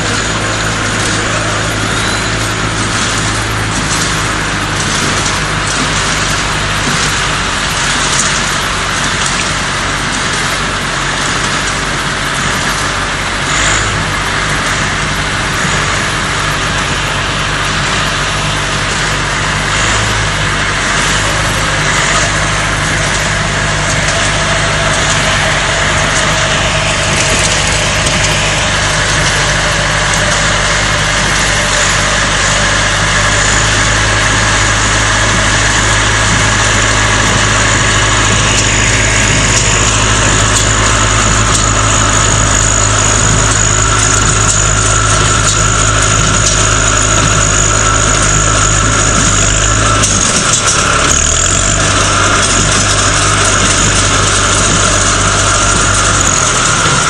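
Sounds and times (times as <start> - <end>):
hay baler working: 0.0 - 57.0
tractor engine running: 0.0 - 57.0.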